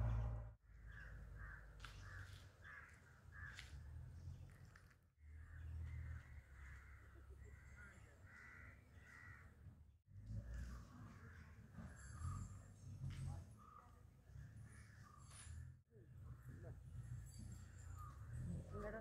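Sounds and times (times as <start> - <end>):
low steady rumble: 0.0 - 0.6.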